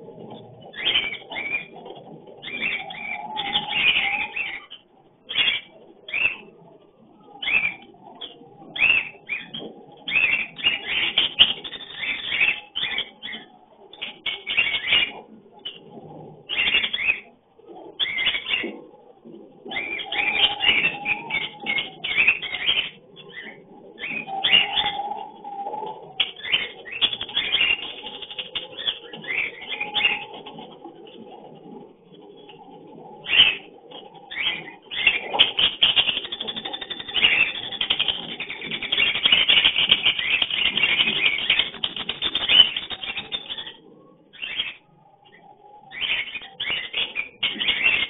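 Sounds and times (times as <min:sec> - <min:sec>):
lovebirds chirping and squeaking: 0:02.4 - 0:06.4, 0:19.7 - 0:30.7, 0:34.3 - 0:48.0.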